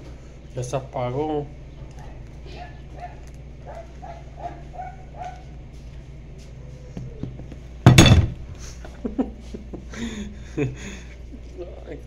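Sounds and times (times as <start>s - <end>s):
dog yapping: 1.9s - 5.5s
tripod knocking on table: 7.9s - 8.4s.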